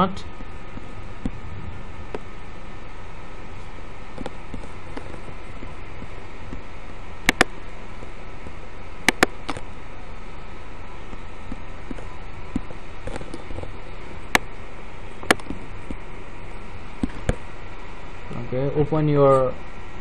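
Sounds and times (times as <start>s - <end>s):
steady hiss: 0.0s - 20.0s
computer mouse clicking: 7.3s - 7.5s, 9.1s - 9.6s.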